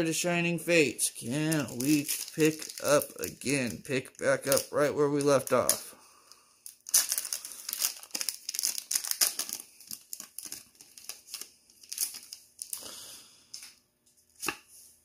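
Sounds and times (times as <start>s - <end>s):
foil wrapper tearing and crinkling: 1.5s - 3.8s, 6.6s - 12.9s.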